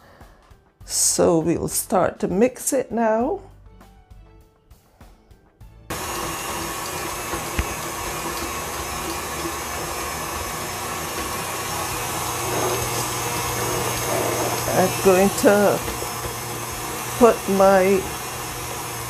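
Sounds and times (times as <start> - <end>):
stand mixer whipping butter: 5.9 - 19.0.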